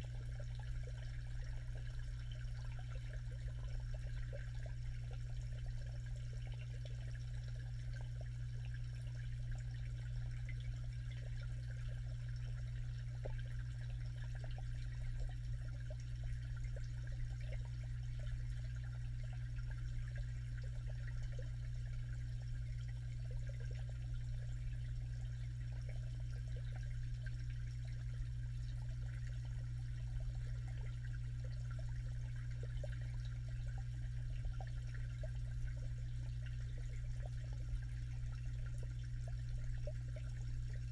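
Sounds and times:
small underwater crackles: 0.0 - 40.9
steady low hum: 0.0 - 40.9.

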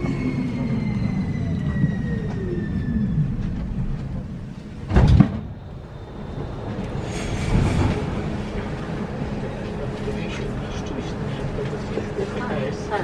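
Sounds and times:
electric train drive whine: 0.0 - 4.9
train running gear rumbling: 0.0 - 13.0
sliding door: 6.8 - 8.4.

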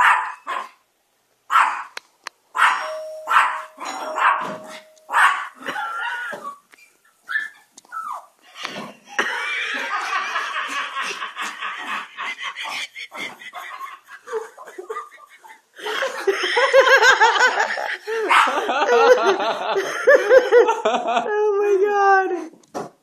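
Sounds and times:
small dog barking and yipping: 0.0 - 0.8, 1.5 - 1.9, 2.6 - 6.5, 7.2 - 8.4.

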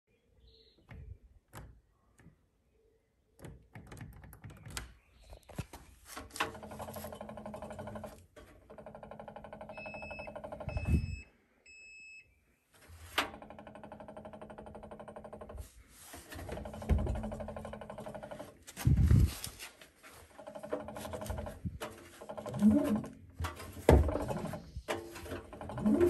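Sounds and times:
drum turning with rattling buzz: 6.3 - 10.9, 13.2 - 15.7, 16.3 - 19.0, 20.3 - 26.0
short beeps: 9.8 - 12.3.

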